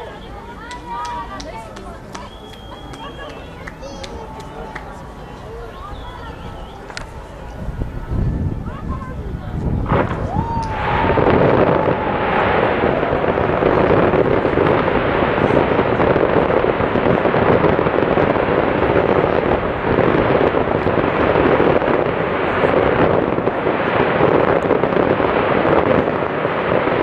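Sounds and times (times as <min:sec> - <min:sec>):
fireworks crackling and popping: 0:00.0 - 0:27.0
firework whistle: 0:02.1 - 0:04.3, 0:05.2 - 0:08.4, 0:09.8 - 0:27.0.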